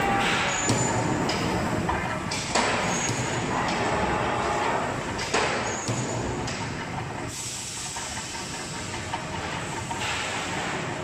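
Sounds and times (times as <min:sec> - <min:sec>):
punch press machine hiss: 0:07.2 - 0:11.0.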